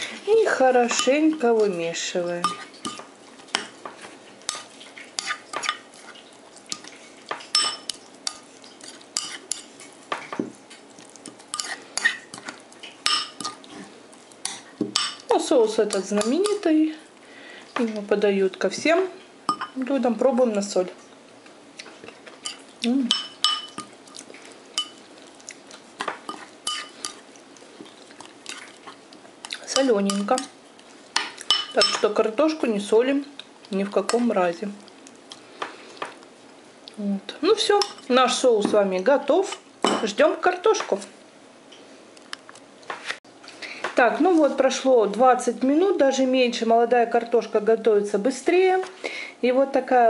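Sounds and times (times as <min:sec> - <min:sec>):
spoon scraping ceramic bowl: 0:02.4 - 0:03.0, 0:04.5 - 0:05.8, 0:07.5 - 0:09.7, 0:11.5 - 0:12.5, 0:26.3 - 0:27.2
spoon scraping thick sauce: 0:02.4 - 0:09.9, 0:11.0 - 0:14.8, 0:22.0 - 0:32.0
metal spoon clinking on bowl: 0:07.5 - 0:08.4, 0:13.0 - 0:13.6, 0:19.5 - 0:19.8, 0:22.4 - 0:23.9, 0:24.8 - 0:25.0, 0:26.3 - 0:27.2, 0:31.2 - 0:32.1.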